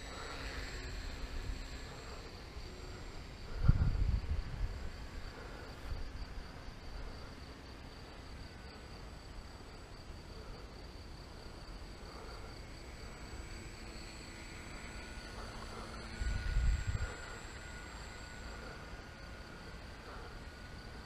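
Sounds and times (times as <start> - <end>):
wind buffeting microphone: 3.4 - 5.0
high-pitched insect chirring: 8.4 - 21.0.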